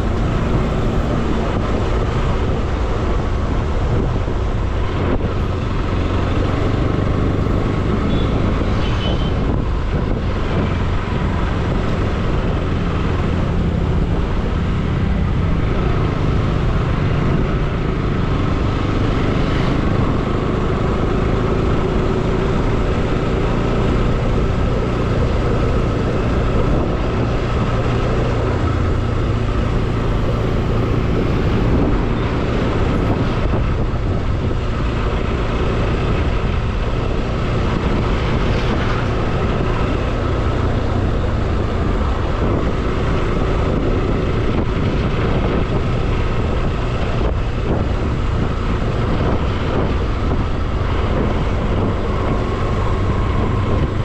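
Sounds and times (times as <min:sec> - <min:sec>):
motorcycle engine cruising: 0:00.0 - 0:54.0
wind and road noise: 0:00.0 - 0:54.0.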